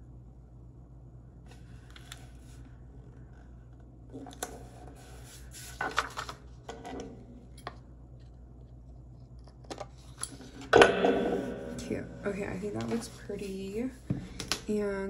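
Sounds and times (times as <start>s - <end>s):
steady low hum: 0.0s - 15.0s
paper page rustling: 4.7s - 6.5s.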